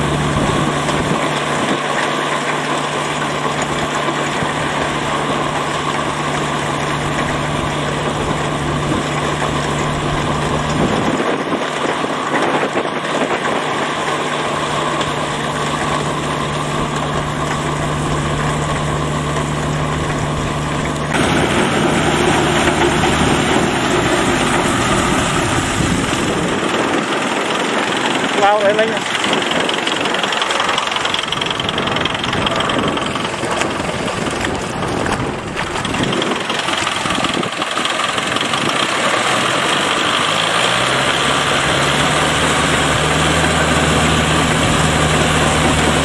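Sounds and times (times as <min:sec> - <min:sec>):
attachment churning wet mud: 0:00.0 - 0:46.0
tractor engine running: 0:00.0 - 0:46.0
low hum: 0:14.6 - 0:28.3.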